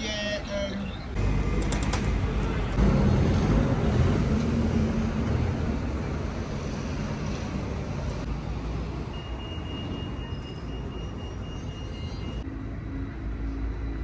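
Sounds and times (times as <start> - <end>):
vehicle engine rumble: 0.8 - 9.0.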